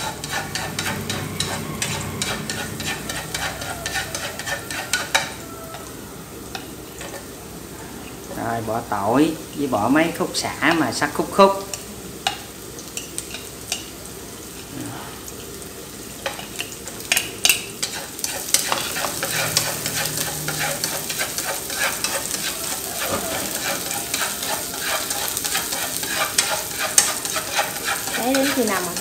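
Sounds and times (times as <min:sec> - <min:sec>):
chopsticks scraping a pan: 0:00.0 - 0:05.9, 0:06.5 - 0:07.4, 0:16.2 - 0:29.0
garlic sizzling in oil: 0:00.0 - 0:29.0.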